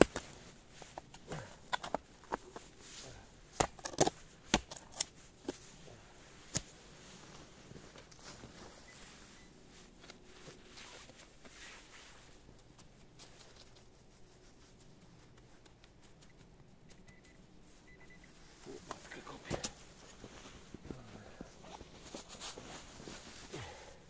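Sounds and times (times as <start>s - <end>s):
soil scraping and rustling: 0.0s - 16.4s, 17.1s - 24.0s.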